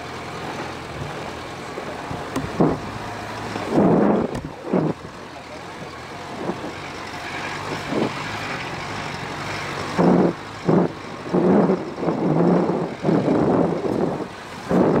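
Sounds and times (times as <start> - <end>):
car engine and tyre noise: 0.0 - 15.0.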